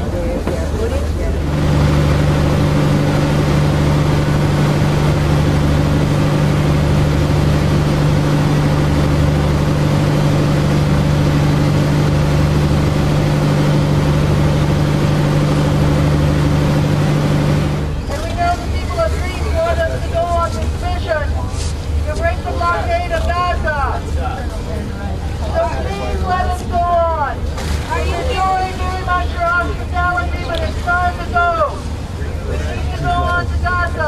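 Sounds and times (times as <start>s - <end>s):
boat engine running: 0.0s - 34.0s.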